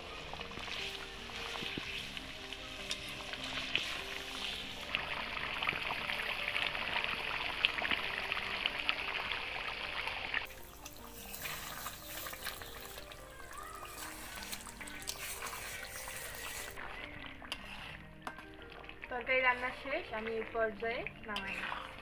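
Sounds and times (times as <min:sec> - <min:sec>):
curry bubbling and sizzling in pan: 0:00.0 - 0:22.0
metal spatula stirring: 0:00.1 - 0:06.9, 0:10.4 - 0:22.0
small crackles: 0:10.4 - 0:22.0.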